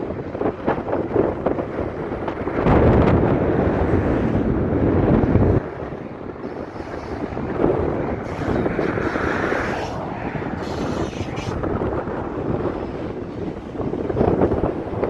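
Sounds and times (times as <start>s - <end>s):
freight cars rolling on rails: 0.0s - 15.0s
wind buffeting microphone: 0.0s - 15.0s.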